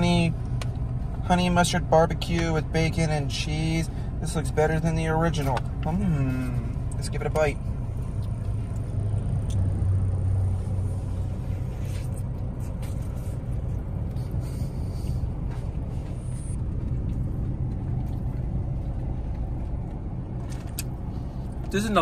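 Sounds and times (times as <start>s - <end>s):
car cabin hum: 0.0s - 22.0s
chewing crunches: 20.4s - 21.7s.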